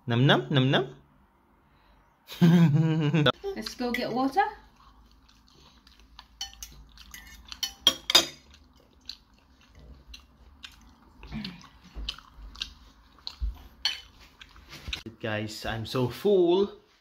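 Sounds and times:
chewing: 4.6 - 15.1
fork clinking on a plate: 6.4 - 8.5.

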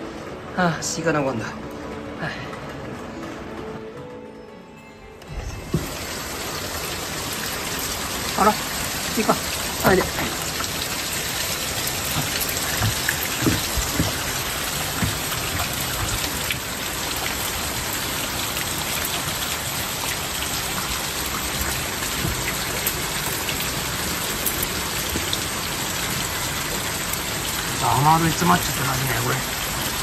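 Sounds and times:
soft low knocks: 11.9 - 16.5.

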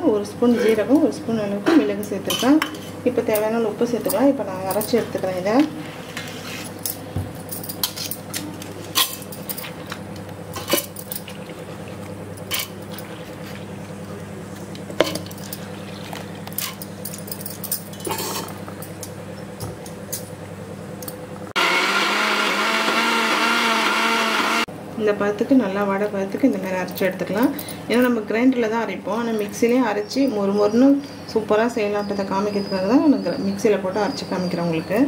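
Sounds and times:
steady low hum: 0.0 - 21.6
mixer grinder running: 21.4 - 24.7.

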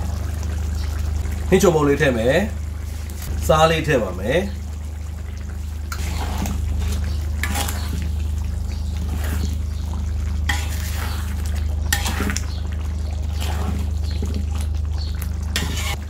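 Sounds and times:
steady low hum: 0.0 - 16.0
metal utensils scraping a wok: 5.9 - 8.2, 9.0 - 9.6, 10.4 - 12.5, 13.3 - 14.2, 15.5 - 16.0.

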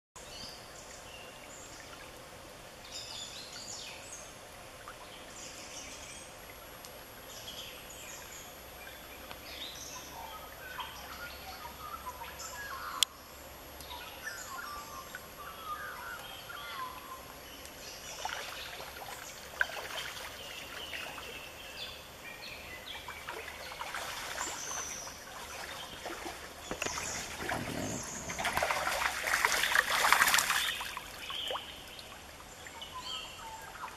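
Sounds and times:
small birds chirping: 13.8 - 33.9
stream trickling over gravel: 16.2 - 33.9.

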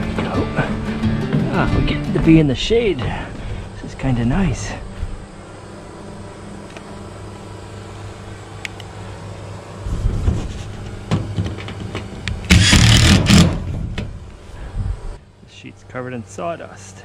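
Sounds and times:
power drill driving screw into metal: 12.5 - 13.6.

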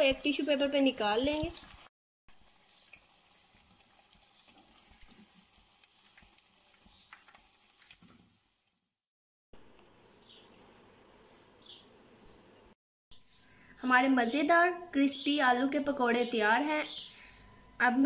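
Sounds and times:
hot oil sizzling: 0.0 - 9.1.

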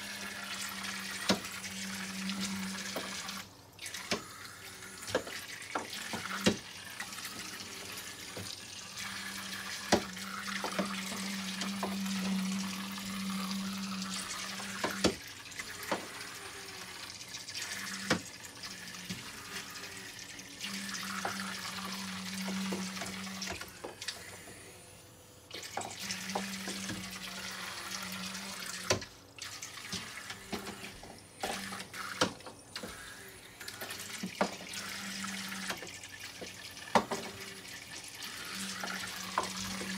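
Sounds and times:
battery motor buzzing: 0.0 - 29.0, 37.3 - 39.9.

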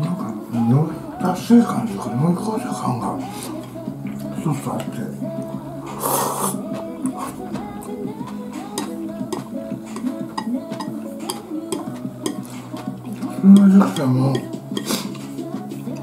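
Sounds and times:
background music: 0.0 - 16.0
eating sounds: 0.3 - 16.0
chopsticks clicking on ceramic bowl: 8.6 - 15.2.

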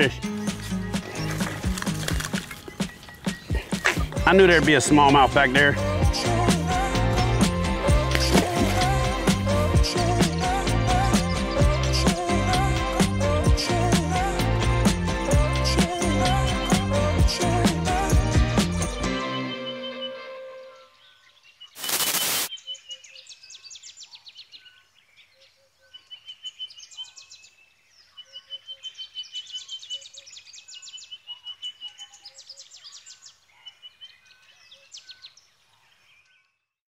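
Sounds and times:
birds chirping: 0.0 - 13.9, 15.2 - 36.6
music: 0.0 - 21.0
loud burst of hiss: 21.8 - 22.5.

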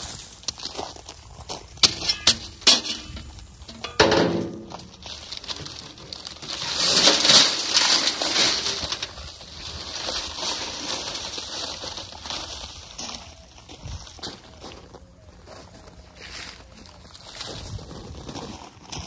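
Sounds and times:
shovel knocking in metal wheelbarrow: 1.8 - 5.0
dry concrete mix spilling: 2.9 - 12.8
paper bag rustling: 4.2 - 13.6.

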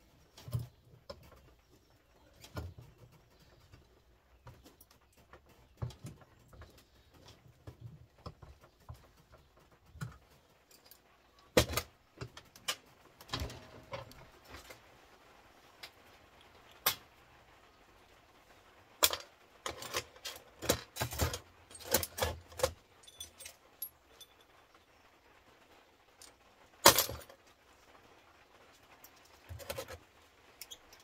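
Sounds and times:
small parts clinking on workbench: 19.0 - 24.5.

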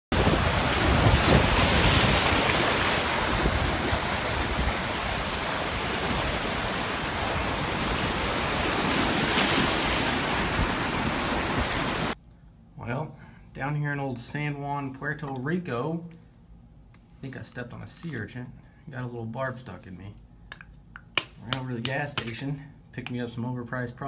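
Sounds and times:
wind buffeting microphone: 0.1 - 12.1
ocean surf breaking: 0.1 - 12.2.

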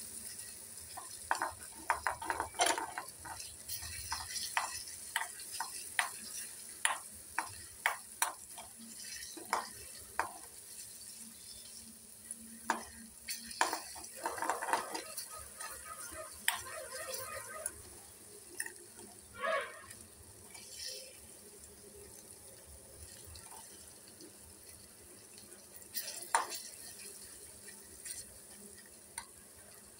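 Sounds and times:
light sizzle of frying: 0.0 - 29.9
metal spoon scraping a pan: 0.3 - 17.6.

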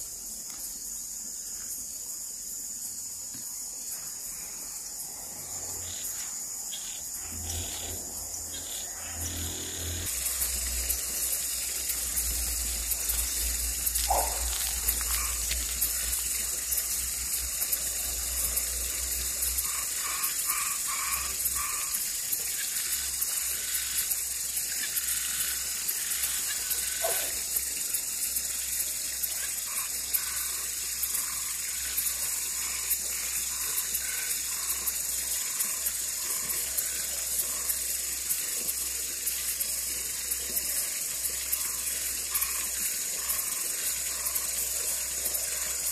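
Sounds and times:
frogs trilling: 0.0 - 45.9
short frog calls: 3.9 - 45.9.

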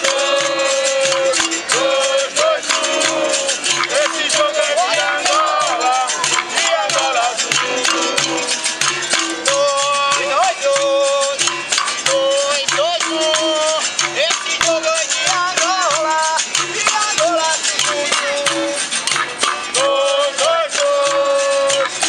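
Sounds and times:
person singing: 0.0 - 19.0, 19.7 - 22.0
musical bows struck rhythmically: 0.0 - 22.0.

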